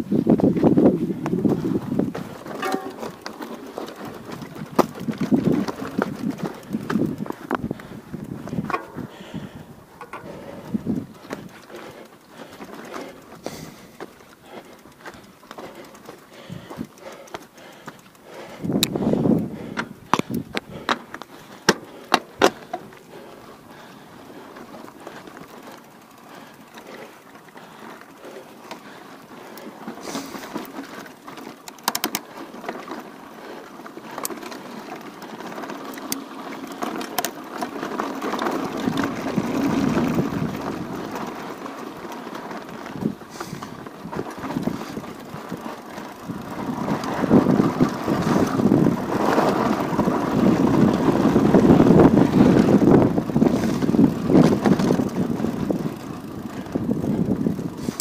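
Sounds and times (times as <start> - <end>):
wind rushing on microphone: 0.0 - 2.5, 4.0 - 11.6, 18.5 - 20.9, 38.7 - 41.0, 46.3 - 58.0.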